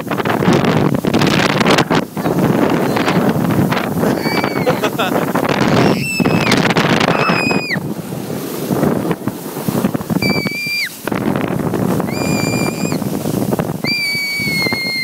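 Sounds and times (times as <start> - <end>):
snow tube sliding on snow: 0.0 - 15.0
wind on microphone: 0.0 - 15.0
child screaming with glee: 4.1 - 5.1, 5.7 - 7.8.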